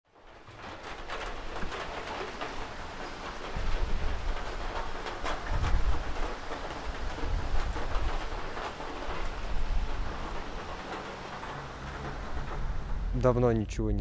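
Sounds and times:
rain falling on water: 0:00.1 - 0:14.0
low rumble: 0:09.2 - 0:14.0.

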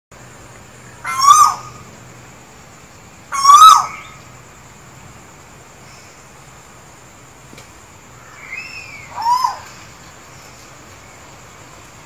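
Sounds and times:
koel calling: 0:01.0 - 0:01.8.

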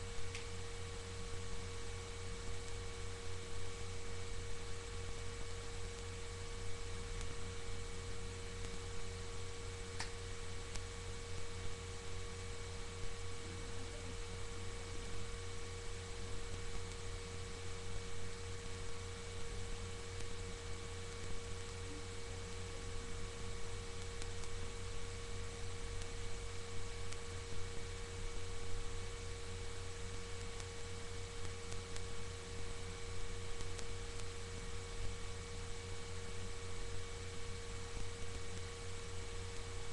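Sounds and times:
electrical hum and hiss: 0:00.0 - 0:39.9
faint click: 0:00.3 - 0:00.5, 0:10.0 - 0:10.9.

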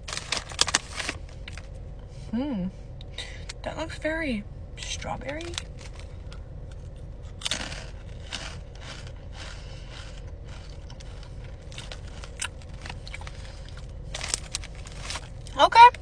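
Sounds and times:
tortilla chip crunching: 0:00.0 - 0:01.7, 0:05.4 - 0:15.6.

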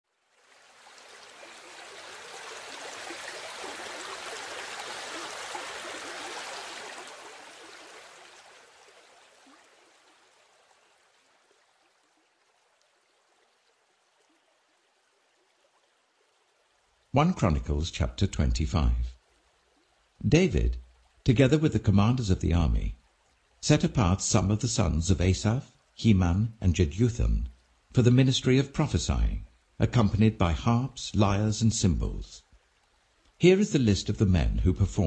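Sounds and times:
river water rushing: 0:00.4 - 0:15.8.

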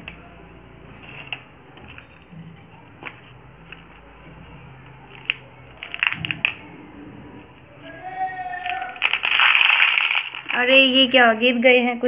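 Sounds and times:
plastic toys clicking and tapping: 0:01.0 - 0:06.8, 0:08.6 - 0:10.8.

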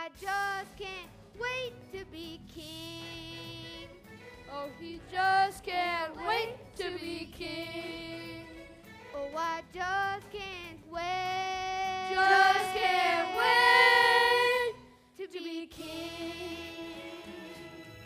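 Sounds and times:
children's chorus singing: 0:11.8 - 0:14.8.

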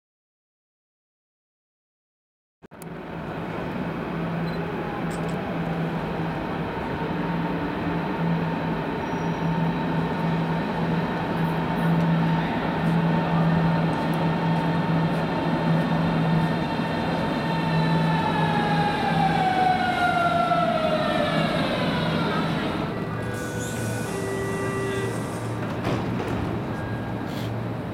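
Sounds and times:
electric train rumble: 0:02.8 - 0:27.9
train motor whine: 0:09.0 - 0:27.9.

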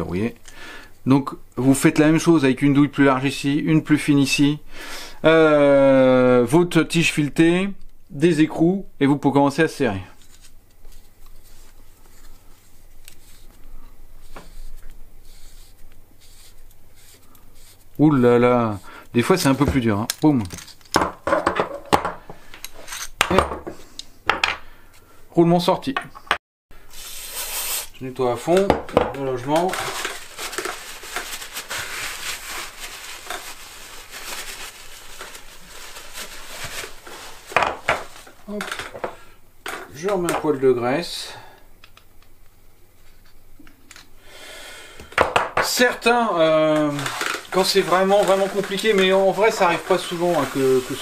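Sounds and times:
threads scraping and rubbing: 0:10.2 - 0:19.6, 0:46.6 - 0:51.0
towel rubbing rustle: 0:29.6 - 0:38.4, 0:46.9 - 0:51.0.

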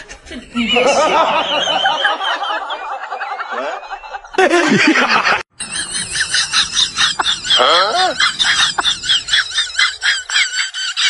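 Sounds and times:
snickering laughter: 0:00.5 - 0:11.0.

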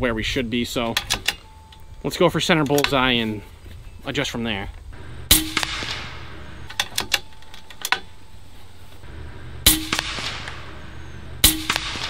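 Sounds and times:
air rifle shot: 0:05.0 - 0:06.8, 0:09.0 - 0:12.0.

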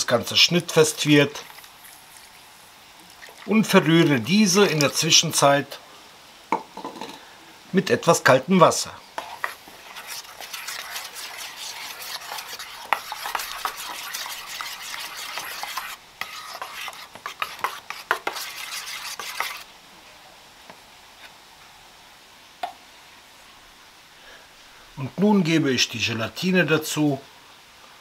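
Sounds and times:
spoon scraping a metal bowl: 0:09.2 - 0:19.7.

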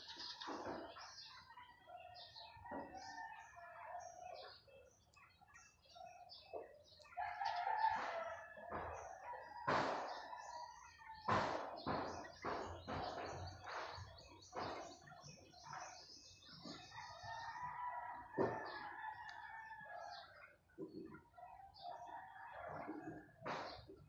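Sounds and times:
sharp knocks: 0:09.6 - 0:10.2, 0:11.3 - 0:15.0.

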